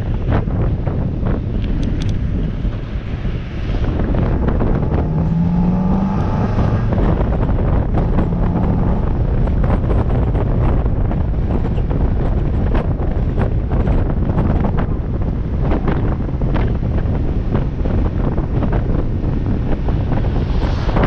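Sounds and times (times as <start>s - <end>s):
wind buffeting microphone: 0.0s - 21.0s
car engine and intake: 19.2s - 21.0s.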